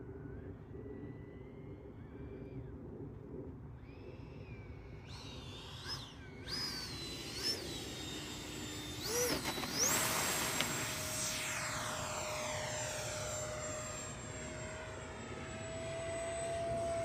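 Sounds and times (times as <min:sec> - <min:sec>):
electric ducted fan whining: 0:03.8 - 0:17.0.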